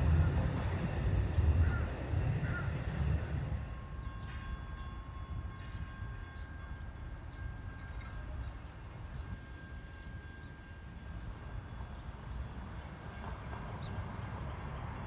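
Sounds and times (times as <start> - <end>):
passenger train rumble: 0.0 - 15.0.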